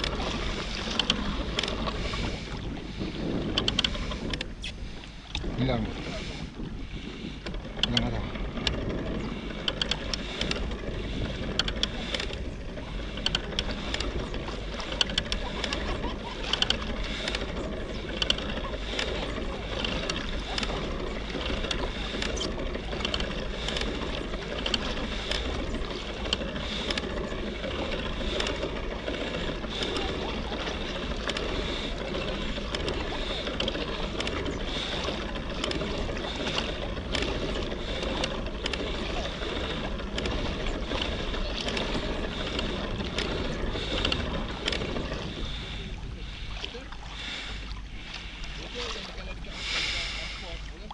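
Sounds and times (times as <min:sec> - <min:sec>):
low rumble and water noise: 0:00.0 - 0:50.9
small clicks and knocks: 0:03.5 - 0:04.5, 0:07.4 - 0:12.4, 0:13.0 - 0:45.6.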